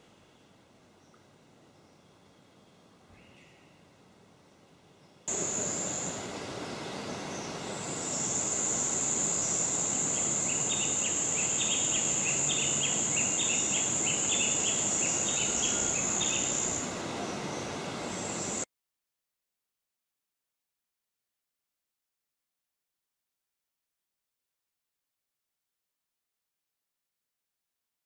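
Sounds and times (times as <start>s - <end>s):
background hiss: 0.0s - 18.7s
insects high-pitched drone: 5.3s - 18.7s.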